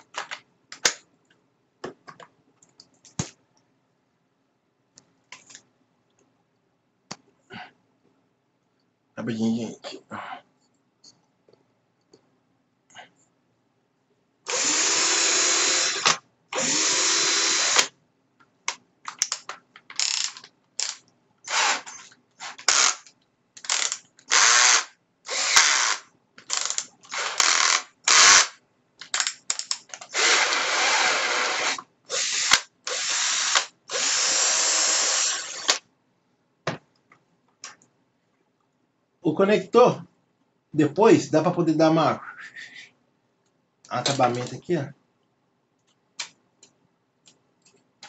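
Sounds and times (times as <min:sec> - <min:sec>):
cordless drill motor running: 0:14.5 - 0:17.9, 0:21.5 - 0:21.9, 0:23.7 - 0:28.4, 0:30.1 - 0:35.8.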